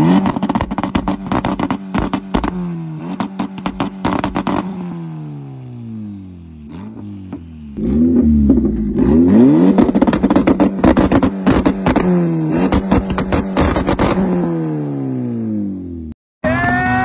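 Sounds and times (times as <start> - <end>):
sharp exhaust cracks: 0.0 - 5.0, 6.7 - 14.4
turbocharged engine revving hard: 0.0 - 15.7.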